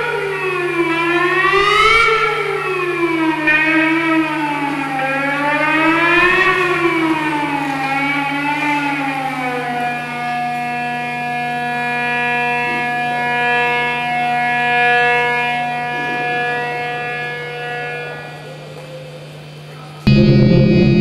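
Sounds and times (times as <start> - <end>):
wailing siren-like electronic tone: 0.0 - 18.5, 20.1 - 21.0
constant low hum: 20.1 - 21.0
steady held chord: 20.1 - 21.0.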